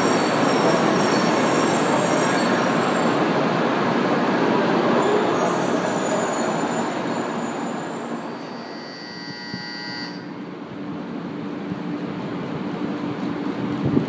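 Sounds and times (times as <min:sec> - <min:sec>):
train pulling in: 0:00.0 - 0:14.0
train running noise: 0:00.0 - 0:14.0
high whine: 0:08.2 - 0:10.6.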